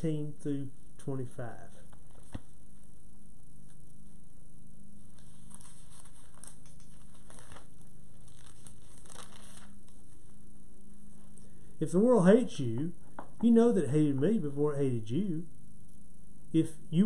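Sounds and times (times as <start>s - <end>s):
low room hum: 0.0s - 17.0s
paper pages rustling: 1.8s - 2.9s, 5.0s - 10.4s.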